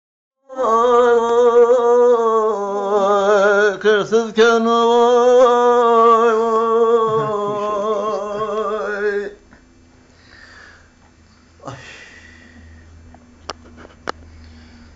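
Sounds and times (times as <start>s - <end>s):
elderly man singing unaccompanied: 0.4s - 9.4s.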